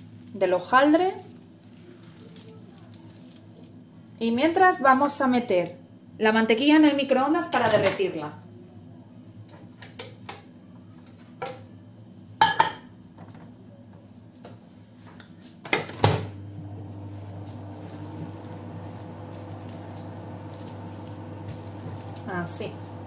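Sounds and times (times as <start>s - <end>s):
microwave humming: 15.8s - 23.0s.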